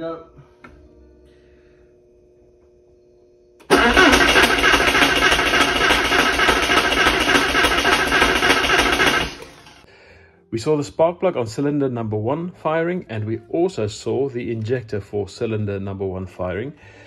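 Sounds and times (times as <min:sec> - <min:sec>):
car engine cranking on starter: 0:03.6 - 0:09.8.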